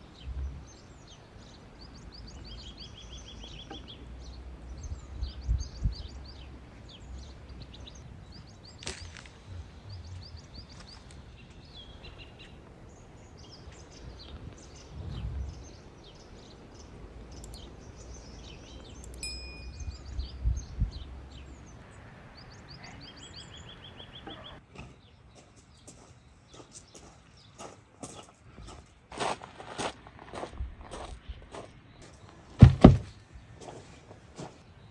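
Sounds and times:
low outdoor rumble: 0:00.0 - 0:22.8
small birds chirping: 0:00.0 - 0:34.9
bird trill: 0:17.4 - 0:20.8
low thumps: 0:32.6 - 0:33.2.

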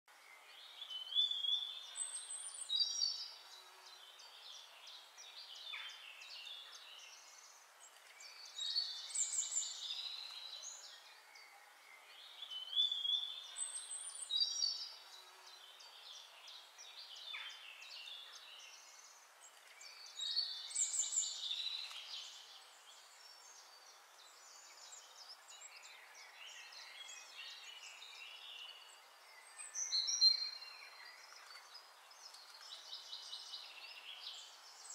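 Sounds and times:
faint steady hiss: 0:00.1 - 0:34.9
songbirds chirping and trilling: 0:00.1 - 0:34.9.

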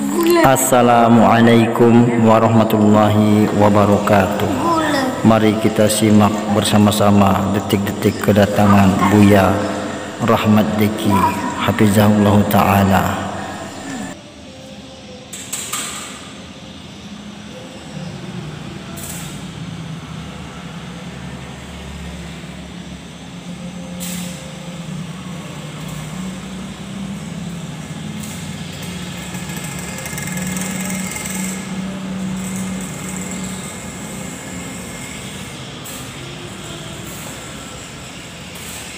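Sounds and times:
arc welding crackling hiss: 0:25.6 - 0:38.9.

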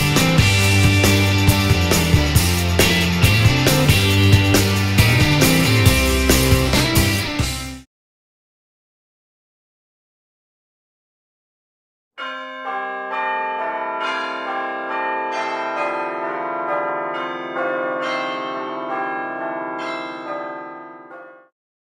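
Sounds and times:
ringing bells melody: 0:00.0 - 0:07.4, 0:12.2 - 0:21.5.

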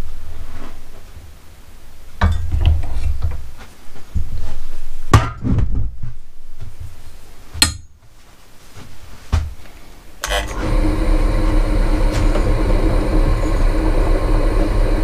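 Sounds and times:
low rumble: 0:10.5 - 0:15.0.

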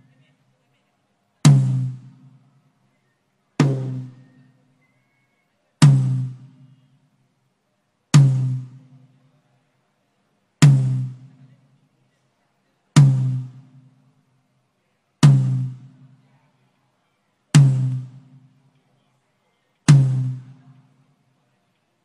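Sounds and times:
drum hits: 0:01.4 - 0:02.4, 0:03.6 - 0:04.2, 0:05.8 - 0:06.7, 0:08.1 - 0:09.1, 0:10.6 - 0:11.4, 0:13.0 - 0:14.0, 0:15.2 - 0:16.2, 0:17.5 - 0:18.6, 0:19.9 - 0:20.6.

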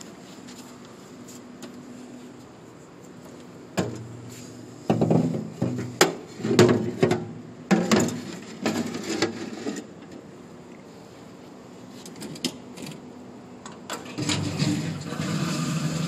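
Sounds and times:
plastic jug scraping metal: 0:14.2 - 0:16.0.

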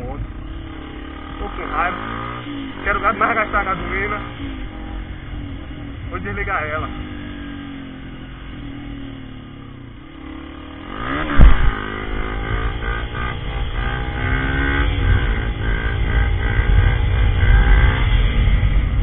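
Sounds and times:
motorcycle engine running: 0:00.0 - 0:19.0
loud thump: 0:11.2 - 0:11.9.

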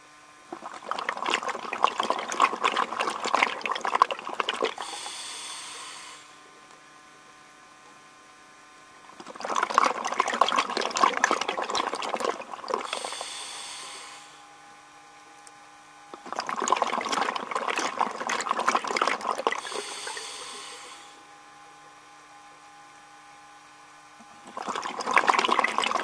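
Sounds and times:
diver exhaling bubbles underwater: 0:00.5 - 0:06.4, 0:09.1 - 0:14.4, 0:16.2 - 0:21.2, 0:24.2 - 0:26.0
regulator hiss: 0:04.8 - 0:06.5, 0:12.9 - 0:14.5, 0:19.6 - 0:21.2.

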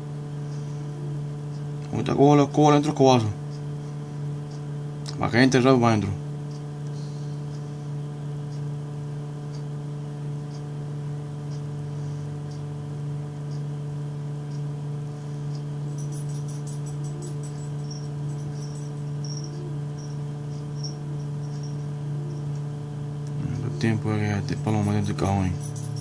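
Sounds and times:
electrical appliance hum: 0:00.0 - 0:26.0
insect chirping trill: 0:15.8 - 0:22.5.

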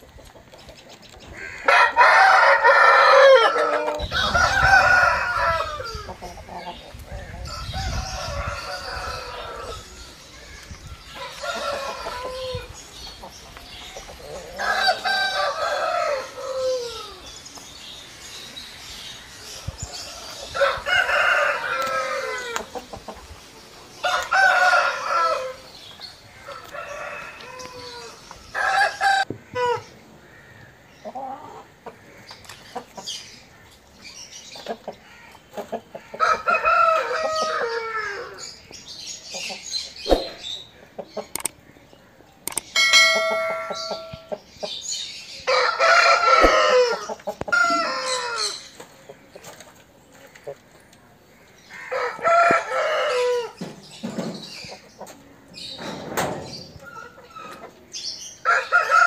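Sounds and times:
roosters crowing: 0:01.4 - 0:17.4, 0:19.8 - 0:23.2, 0:23.9 - 0:30.7, 0:35.0 - 0:38.7, 0:42.8 - 0:44.4, 0:45.3 - 0:48.8, 0:51.6 - 0:54.9, 0:55.6 - 0:59.0.

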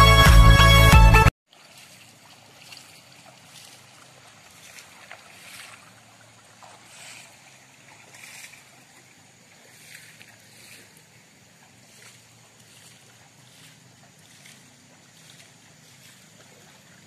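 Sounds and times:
floodwater rushing: 0:01.5 - 0:17.0
water splashing: 0:01.5 - 0:17.0.

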